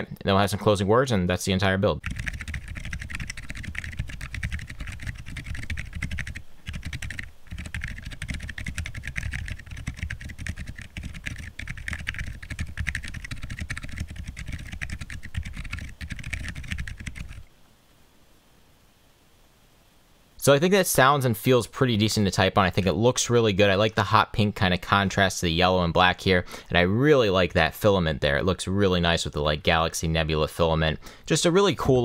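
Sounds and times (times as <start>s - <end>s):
fast typing on a keyboard: 2.0s - 17.5s.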